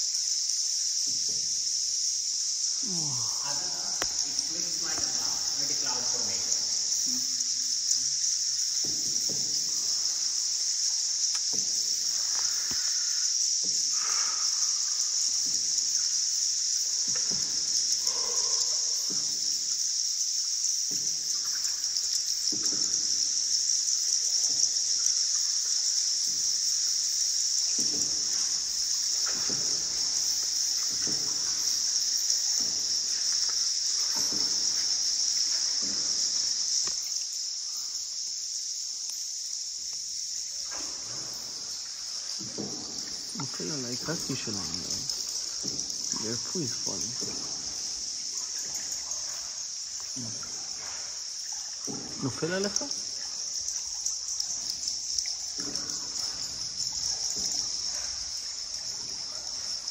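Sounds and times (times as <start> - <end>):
river water hissing: 0.0 - 59.9
soft water splashes: 40.6 - 59.9.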